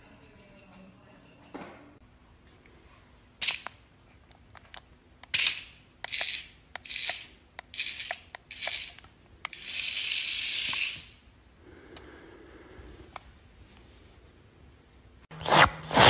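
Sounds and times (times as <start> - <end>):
cat hissing: 15.4 - 16.0
cat spitting: 15.4 - 16.0.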